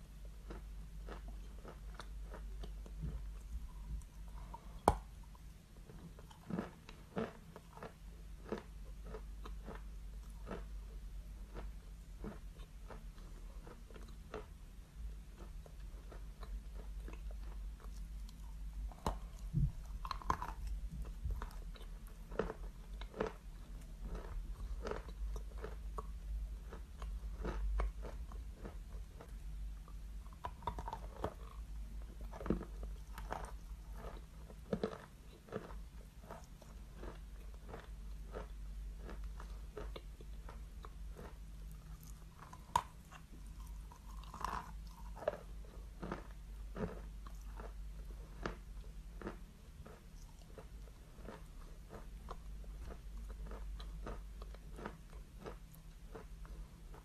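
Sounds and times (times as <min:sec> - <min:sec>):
chalk being bitten and chewed: 0:05.9 - 0:10.7, 0:15.3 - 0:29.5, 0:30.3 - 0:57.0.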